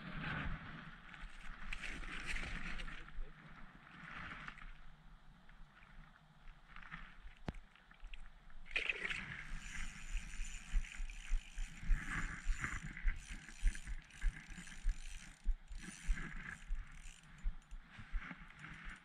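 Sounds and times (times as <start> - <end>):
fishing reel whirring: 9.0 - 17.9.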